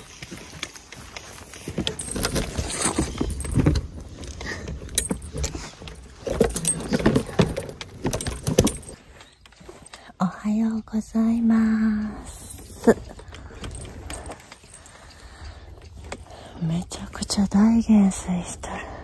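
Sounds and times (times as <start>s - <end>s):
footsteps through dry grass: 0.0s - 2.0s
fishing tackle jangling: 0.0s - 10.1s, 12.4s - 16.4s.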